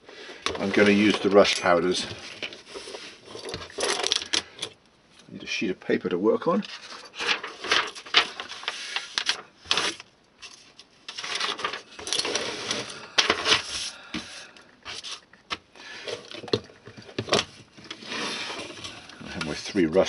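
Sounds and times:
paper rustling: 6.7s - 14.0s.

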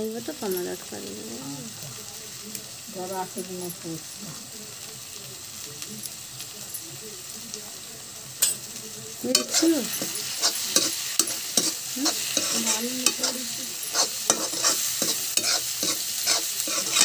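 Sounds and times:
food sizzling: 0.0s - 17.0s
spatula scraping a wok: 9.3s - 17.0s.

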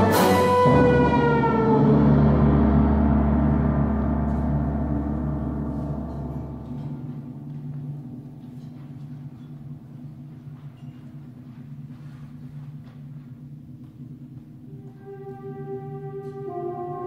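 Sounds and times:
brass chord: 0.0s - 7.7s, 14.7s - 17.0s
gong ringing: 0.0s - 8.8s
low sustained tone: 0.0s - 10.9s.

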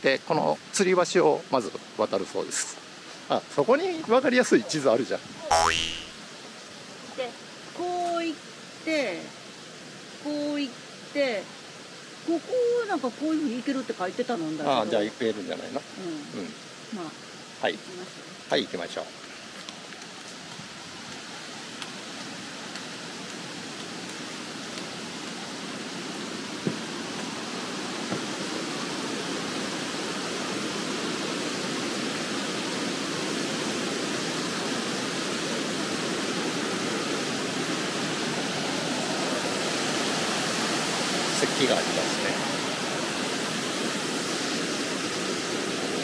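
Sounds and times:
rushing river water: 6.0s - 46.0s.

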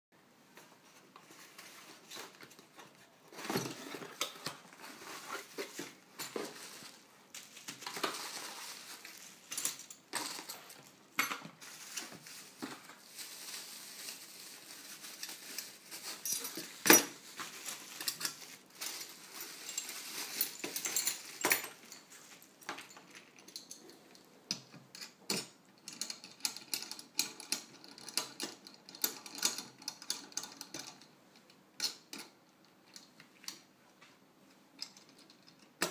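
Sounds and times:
plastic and bubble wrap rustling: 0.7s - 23.4s.

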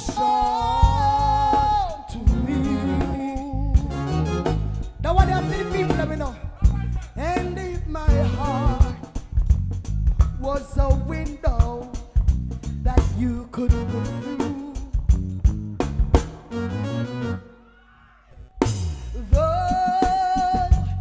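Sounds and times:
person singing: 0.0s - 4.3s, 5.0s - 9.2s, 12.8s - 15.1s, 19.1s - 21.0s
drum kit hits and cymbals: 0.0s - 16.6s
live reggae band: 0.0s - 21.0s.

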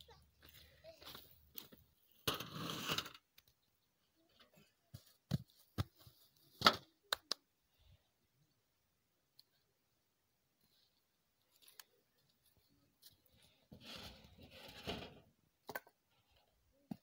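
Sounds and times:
rustling scrape: 13.5s - 15.2s.

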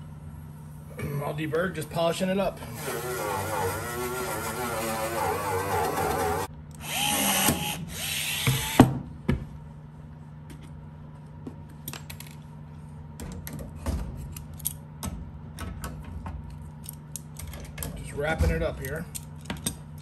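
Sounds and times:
rotary polishing tool whining: 2.7s - 8.8s.

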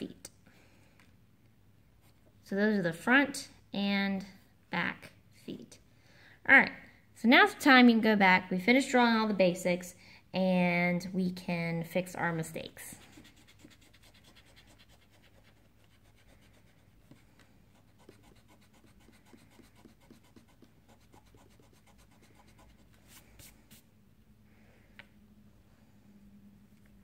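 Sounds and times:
eraser rubbing on paper: 12.9s - 23.8s.

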